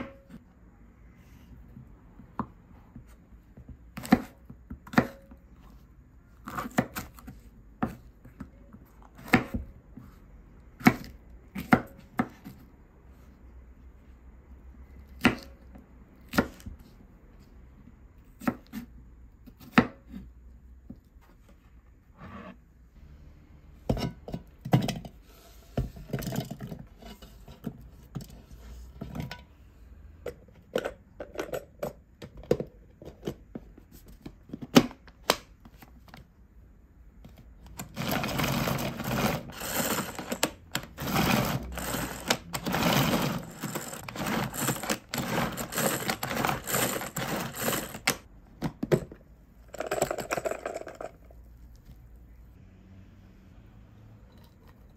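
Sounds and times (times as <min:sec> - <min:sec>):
clatter of plastic parts: 0:37.7 - 0:51.3
manual food chopper rattling: 0:37.8 - 0:48.2.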